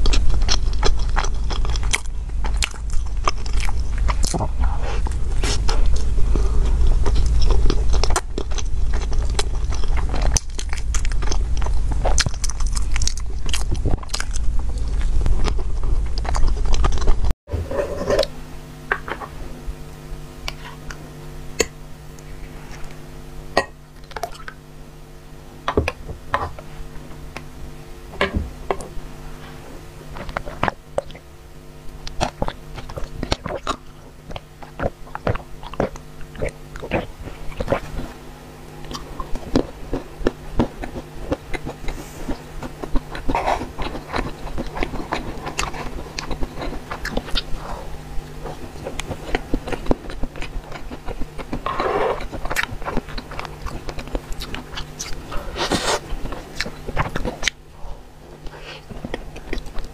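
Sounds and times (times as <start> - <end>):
chewing bread: 0.0 - 17.4, 30.1 - 38.2, 38.8 - 59.9
heavy low rumble: 0.0 - 33.8
steady low hum: 0.0 - 59.9.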